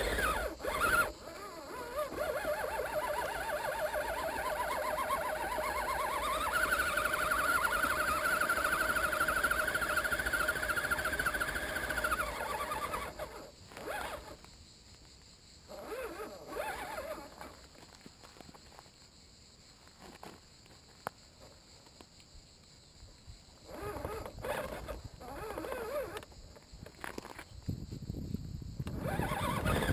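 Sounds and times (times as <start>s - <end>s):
rc car motor whining: 0.0s - 14.5s, 15.7s - 17.8s, 23.7s - 26.3s, 28.8s - 29.9s
faint scattered noises: 0.0s - 28.2s.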